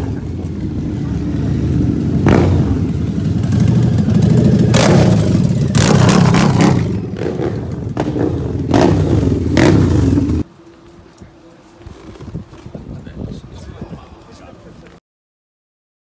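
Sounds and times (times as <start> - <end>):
motorcycle engine revving: 0.0 - 10.5.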